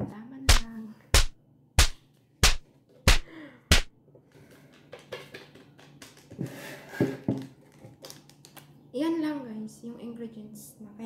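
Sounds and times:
packet rustling: 0:07.5 - 0:08.7.

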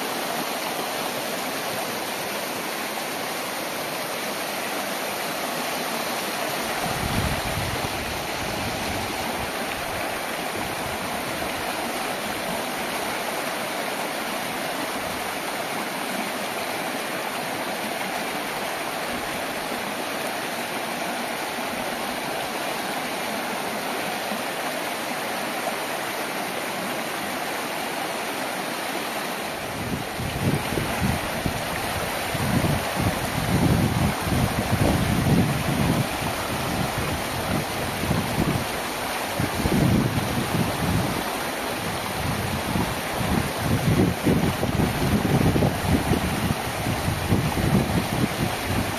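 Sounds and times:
mountain stream rushing over rock: 0:00.0 - 0:48.9
wind buffeting microphone: 0:06.7 - 0:11.5, 0:29.6 - 0:48.9.

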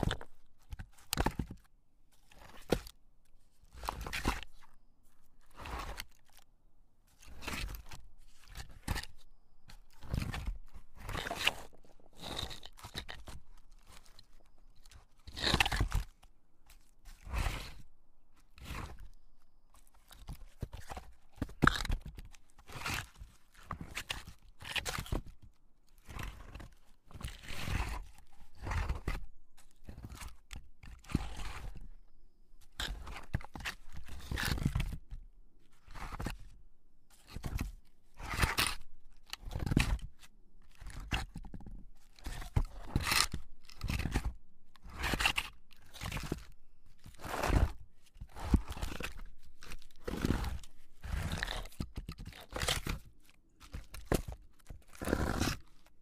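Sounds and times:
log scraping over boulder: 0:47.2 - 0:49.0, 0:49.6 - 0:51.7, 0:55.0 - 0:55.6.

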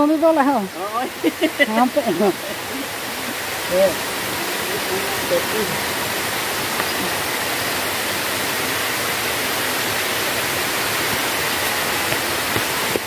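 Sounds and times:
water rushing down spillway: 0:00.0 - 0:13.0.

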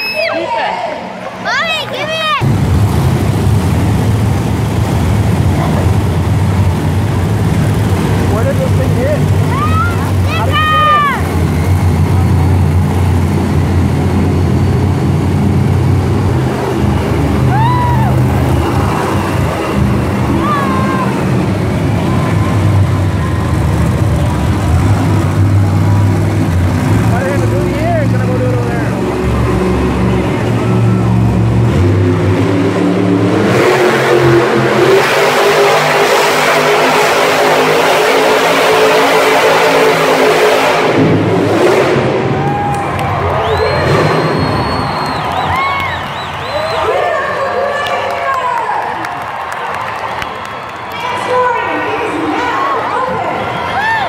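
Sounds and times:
monster truck engine running: 0:01.2 - 0:53.8
high rising-and-falling cry: 0:17.4 - 0:19.0.

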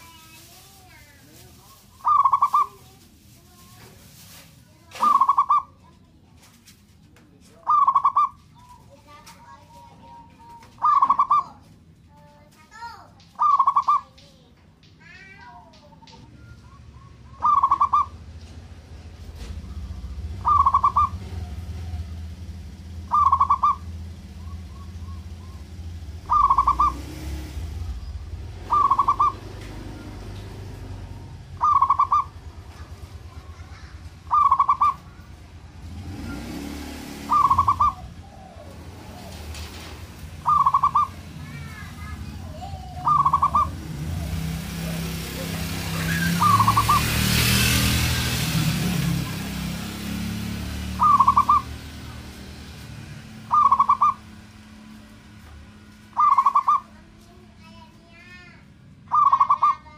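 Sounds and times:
small birds chirping: 0:00.0 - 0:59.9
dove cooing: 0:01.7 - 0:02.9, 0:04.9 - 0:05.8, 0:07.6 - 0:11.6, 0:13.4 - 0:14.1, 0:15.9 - 0:18.3, 0:19.8 - 0:30.3, 0:31.0 - 0:35.3, 0:36.2 - 0:47.2, 0:50.9 - 0:51.9, 0:53.4 - 0:54.4, 0:56.2 - 0:57.0, 0:59.1 - 0:59.9.

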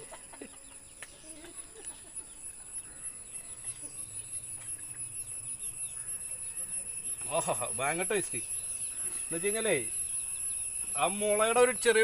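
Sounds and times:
chickens clucking: 0:00.0 - 0:02.6
high-pitched background tone: 0:01.2 - 0:12.0.

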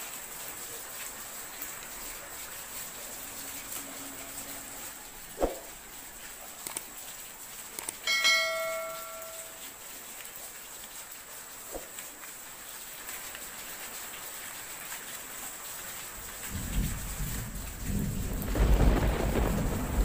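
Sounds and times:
faint hiss of rain: 0:00.0 - 0:20.0
bright bell chime: 0:08.0 - 0:09.6.

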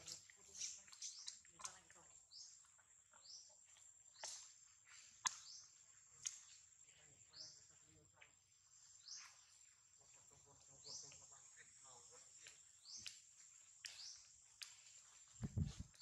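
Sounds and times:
bird chirps: 0:02.3 - 0:04.5, 0:05.2 - 0:06.6.

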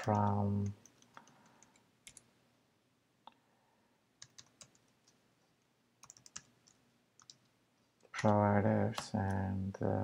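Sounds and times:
faint computer keyboard keystrokes: 0:00.0 - 0:02.3, 0:04.2 - 0:05.2, 0:06.0 - 0:08.4.

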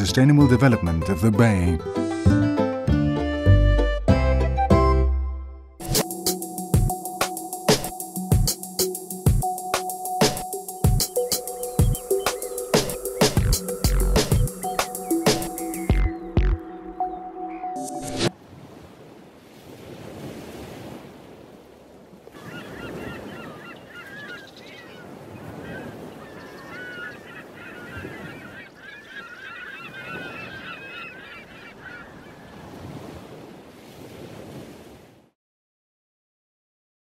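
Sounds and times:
waves washing: 0:17.8 - 0:28.8, 0:29.8 - 0:35.3
flock of birds calling: 0:22.3 - 0:32.7.

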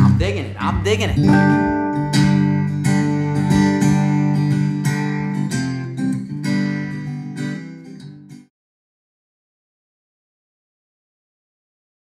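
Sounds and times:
acoustic guitar strumming chords: 0:00.0 - 0:08.5.

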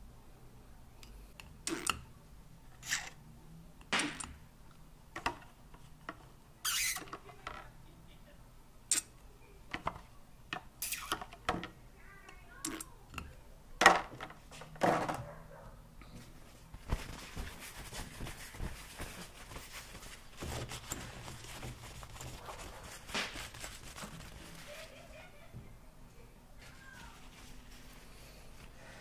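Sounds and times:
paper towel rustling: 0:16.2 - 0:25.4, 0:26.6 - 0:28.9.

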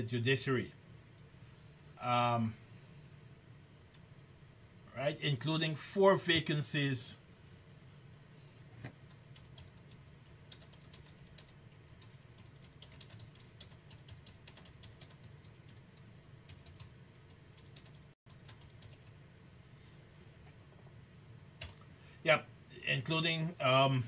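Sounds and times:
low room hum: 0:00.0 - 0:24.0
keyboard typing clicks: 0:09.1 - 0:15.8.

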